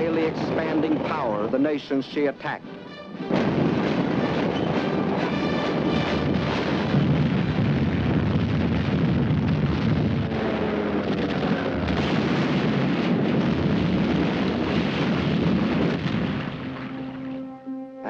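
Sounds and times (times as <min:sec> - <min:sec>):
explosions: 0:00.0 - 0:01.8, 0:03.2 - 0:17.4
gunfire: 0:03.2 - 0:17.3.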